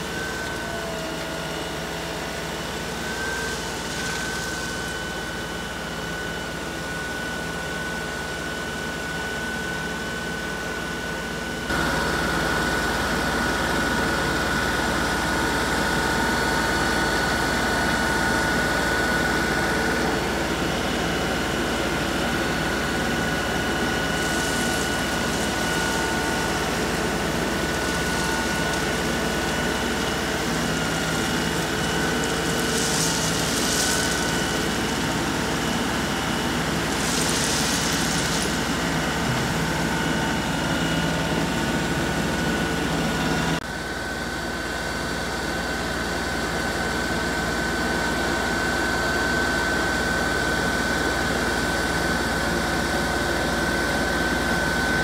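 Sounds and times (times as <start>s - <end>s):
tractor diesel engine running: 0.0s - 55.0s
high whine: 21.7s - 43.5s.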